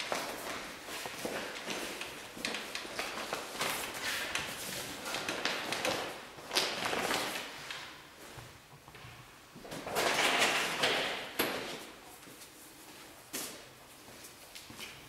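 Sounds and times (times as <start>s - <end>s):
plastic sheeting rustling: 0.0s - 8.2s.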